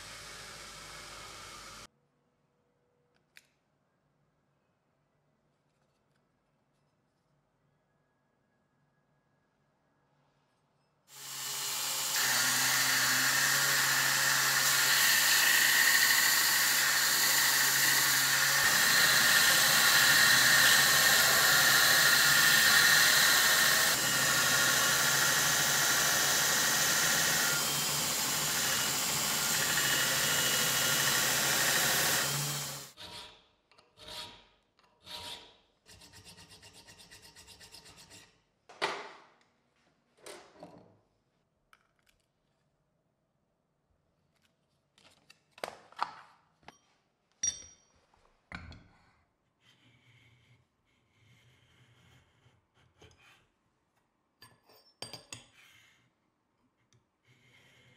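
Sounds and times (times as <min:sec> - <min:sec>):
belt grinder motor hum: 0:00.0 - 0:01.9, 0:11.1 - 0:33.0.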